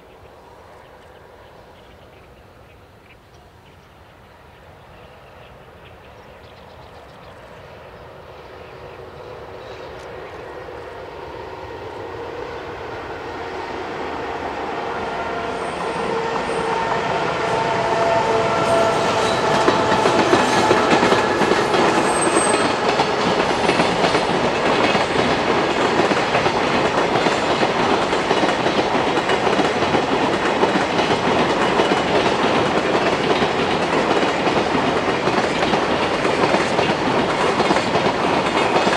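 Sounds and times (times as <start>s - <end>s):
freight train passing: 0.0s - 38.9s
wagon wheels clickety-clack: 19.6s - 38.9s.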